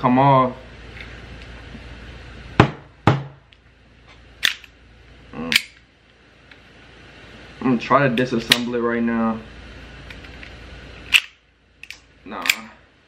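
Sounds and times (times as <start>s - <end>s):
pistol parts clicking: 4.4s - 4.8s, 11.1s - 12.7s.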